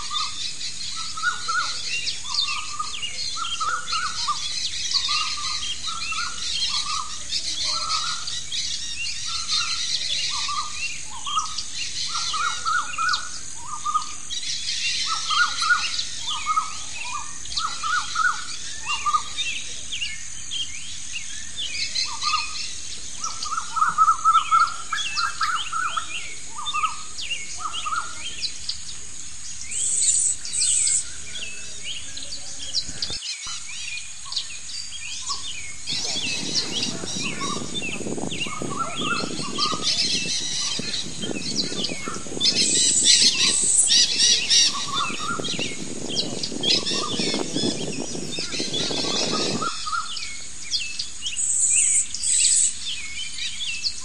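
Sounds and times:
steady high hiss: 0.0s - 54.0s
fainter bird chirps: 29.7s - 51.0s
bird chirping in quick runs: 32.7s - 52.5s.

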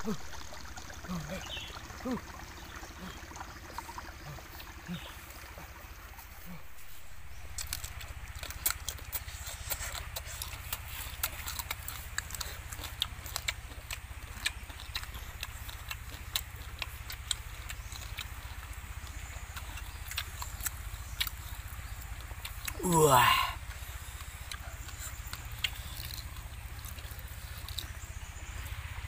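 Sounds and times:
steady low hum: 0.0s - 29.0s
crunching small bones: 7.5s - 22.8s, 24.4s - 28.0s.

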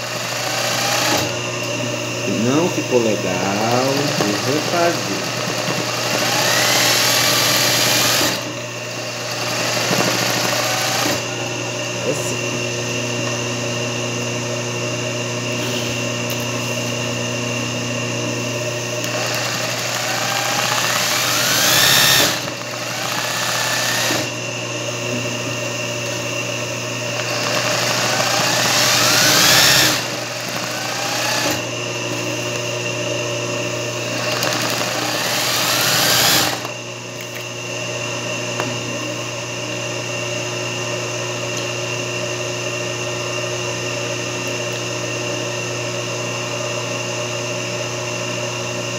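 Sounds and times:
sewing machine stitching: 0.0s - 1.4s, 3.4s - 11.3s, 19.0s - 24.3s, 27.2s - 31.6s, 34.2s - 36.7s
steady motor hum: 0.0s - 48.9s.

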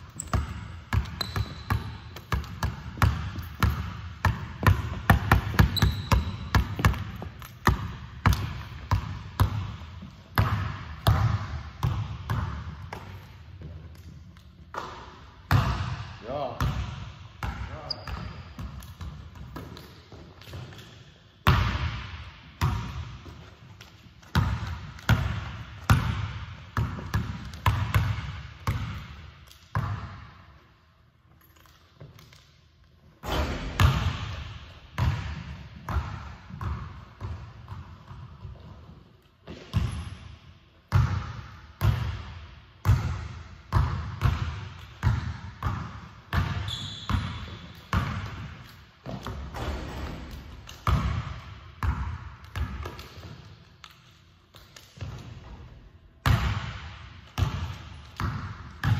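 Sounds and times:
basketball dribbling on hardwood: 0.2s - 13.8s, 24.2s - 29.2s, 33.6s - 38.9s.

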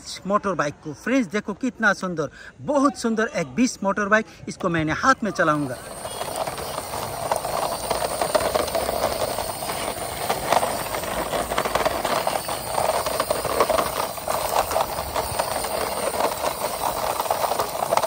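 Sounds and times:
plastic toy wheels rattling on concrete: 5.0s - 18.0s.

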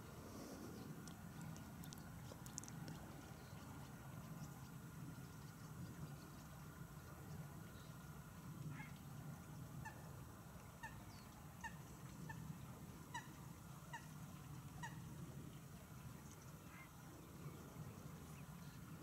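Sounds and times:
low steady hum: 0.0s - 19.0s
distant geese honking: 9.8s - 15.2s.

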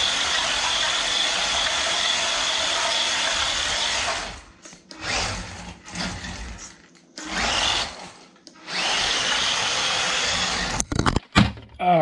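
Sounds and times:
electric motor and gears whirring: 0.0s - 11.0s.

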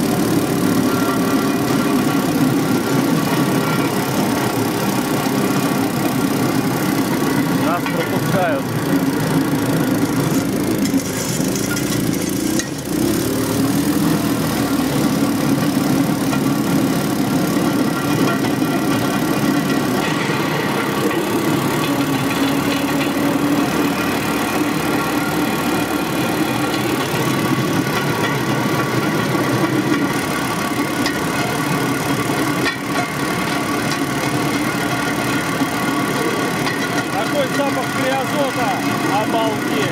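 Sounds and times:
cart rolling on rails: 0.0s - 39.9s
rail cart engine running: 0.0s - 39.9s.

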